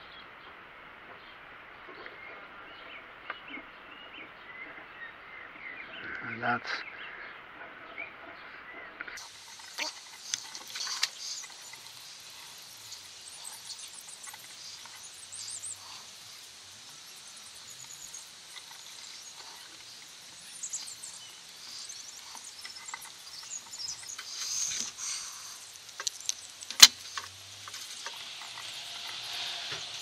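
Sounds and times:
high-pitched wildlife chirps: 9.2s - 30.0s.

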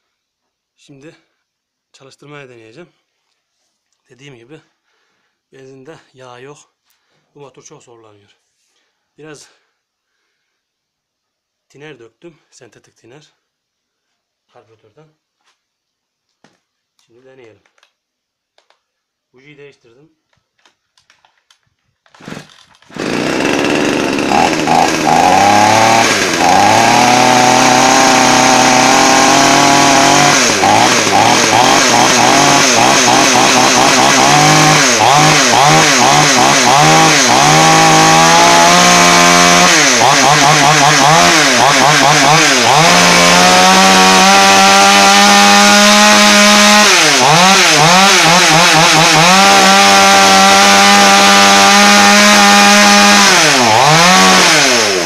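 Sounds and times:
chainsaw engine revving: 22.0s - 55.0s.

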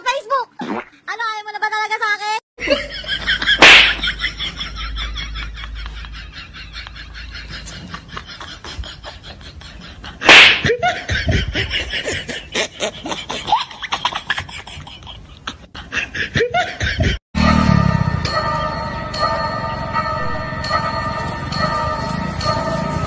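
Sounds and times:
laughter: 2.6s - 17.2s
sharp smacks: 3.6s - 4.0s, 10.2s - 10.7s.

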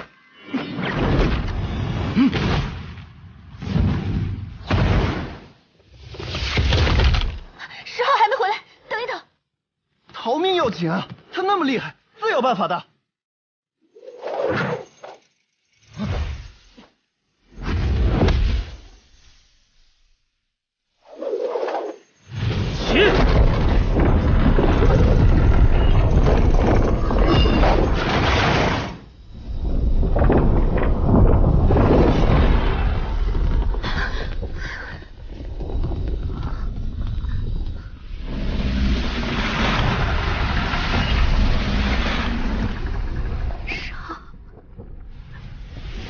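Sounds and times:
deep rumble: 22.8s - 46.0s.

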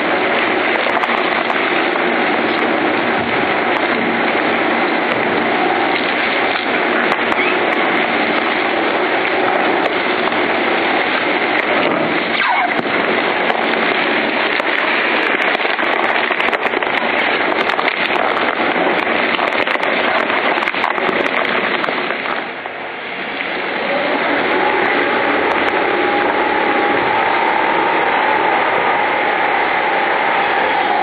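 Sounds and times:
waste shredder crunching plastic: 0.0s - 22.6s, 23.8s - 31.0s.

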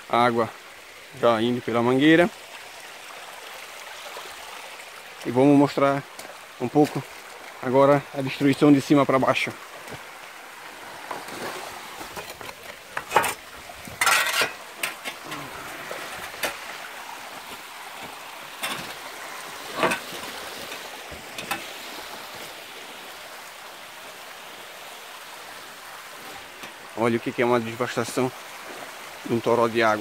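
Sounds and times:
water trickling over stones: 0.0s - 30.0s
leaves brushing: 10.8s - 22.7s.

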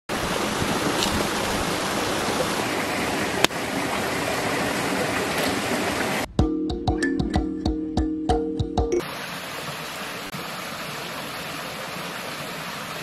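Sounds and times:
running water rushing: 0.1s - 6.3s, 9.0s - 13.0s.

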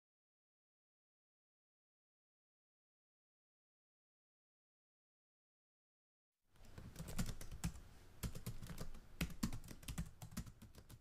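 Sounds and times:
computer keys clacking: 6.6s - 11.0s.

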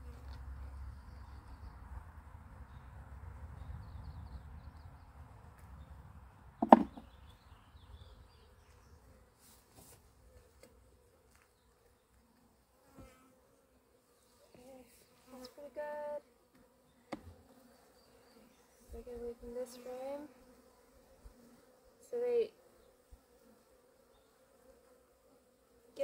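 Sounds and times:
bee buzzing close by: 6.6s - 26.0s.

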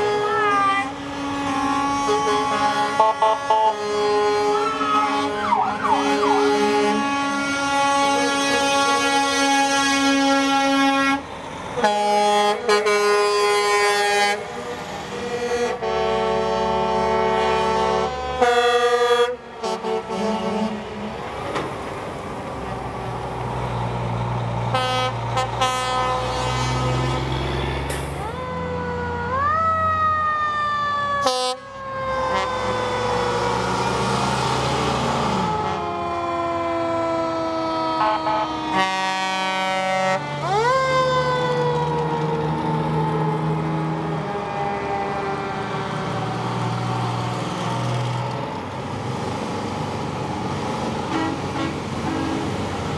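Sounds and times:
fire engine siren wailing: 0.0s - 21.2s, 24.7s - 52.9s
truck air horns blasting: 0.0s - 21.2s, 24.7s - 27.3s, 31.2s - 34.1s, 34.9s - 36.0s, 37.1s - 40.6s, 51.0s - 52.8s
diesel engines rumbling past: 0.0s - 52.9s.

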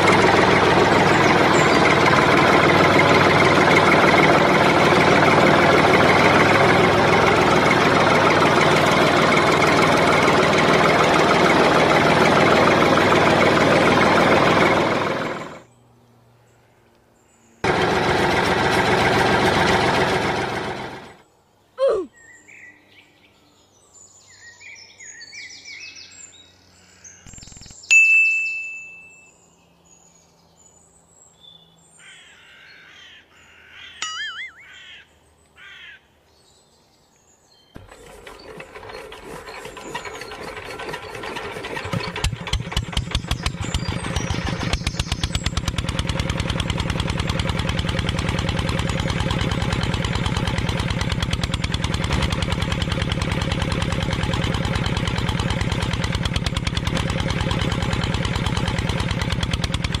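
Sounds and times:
diesel engine starting and running: 0.0s - 15.7s, 17.6s - 21.3s, 37.8s - 60.0s
faint bird chirps: 26.8s - 28.0s.

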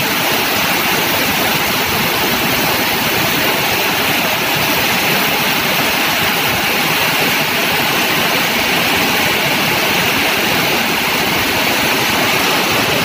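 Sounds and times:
heavy rain falling: 0.0s - 13.0s
vehicles splashing through floodwater: 0.0s - 13.0s.

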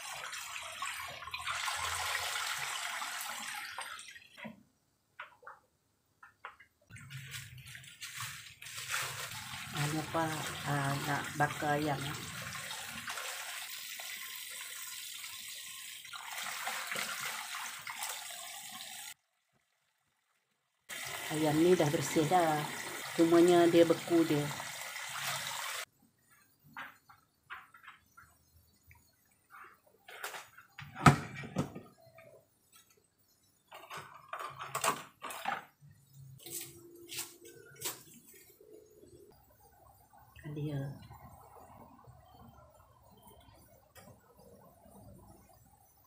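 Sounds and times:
tap water running onto dishes: 0.0s - 4.6s, 6.3s - 19.2s, 20.9s - 25.9s
hands rinsing dishes: 6.2s - 19.0s.

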